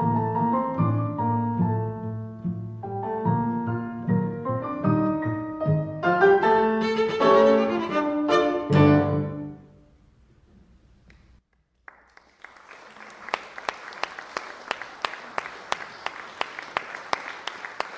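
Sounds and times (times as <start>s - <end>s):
cello and piano chord: 5.0s - 9.7s
audience applause: 11.8s - 17.9s.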